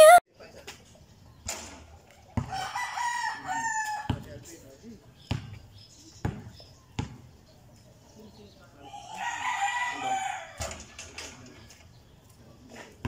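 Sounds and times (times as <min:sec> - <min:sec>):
basketball bouncing on court: 0:05.3 - 0:05.6, 0:06.2 - 0:07.3
rooster crowing: 0:09.1 - 0:10.6.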